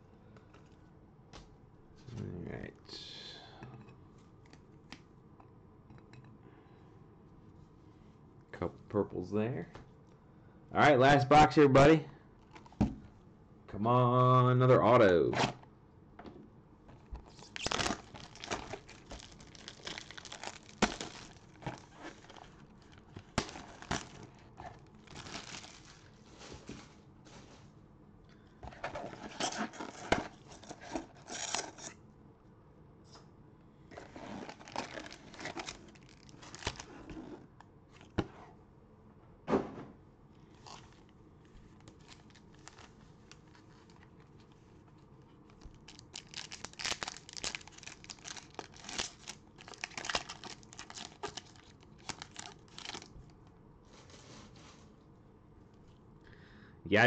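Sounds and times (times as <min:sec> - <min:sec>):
plastic wrap crinkling and tearing: 0:17.3 - 0:26.8, 0:33.9 - 0:37.2, 0:41.7 - 0:44.1, 0:45.4 - 0:53.2
foil pack handled: 0:17.3 - 0:27.6, 0:33.9 - 0:37.4, 0:41.8 - 0:44.1, 0:45.6 - 0:53.1.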